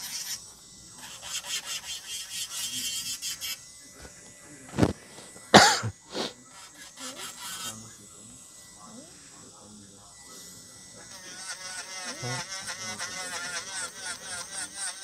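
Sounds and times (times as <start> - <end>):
nail drill grinding acrylic nail: 0.0 - 15.0
person coughing: 5.5 - 6.4.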